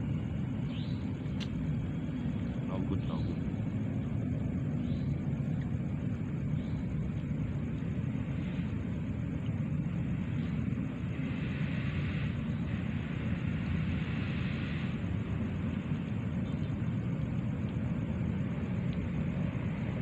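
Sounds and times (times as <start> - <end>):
faint high pulsing hiss: 0.0 - 20.0
low rumbling background noise: 0.0 - 20.0.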